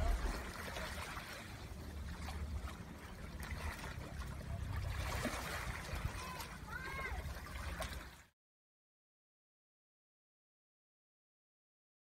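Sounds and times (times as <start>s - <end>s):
waves lapping against rocks: 0.0s - 8.3s.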